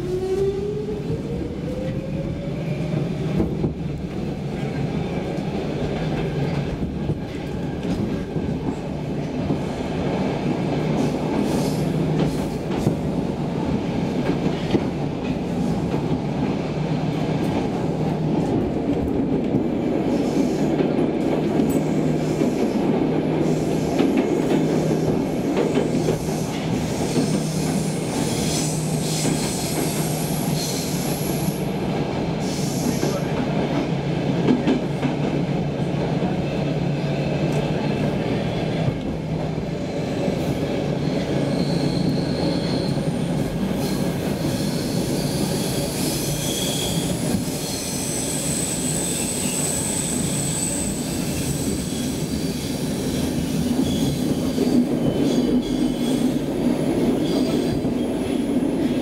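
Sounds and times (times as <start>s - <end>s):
train wheels rumbling on rails: 0.0s - 59.0s
high-pitched wheel squeal: 41.0s - 43.0s.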